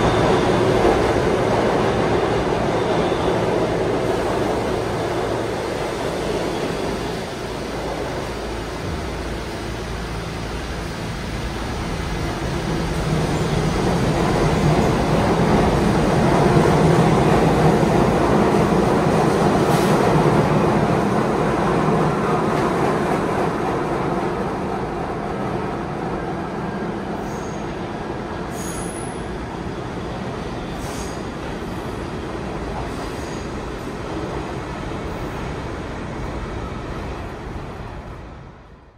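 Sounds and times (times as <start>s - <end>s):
subway train motors and wheels: 0.0s - 38.9s
high-pitched train squeals: 28.5s - 31.4s.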